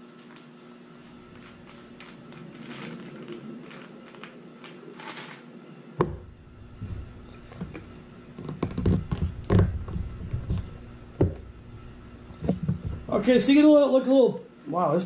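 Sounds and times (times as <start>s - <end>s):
plastic pieces clicking: 0.2s - 5.5s
thuds and taps: 6.0s - 11.5s.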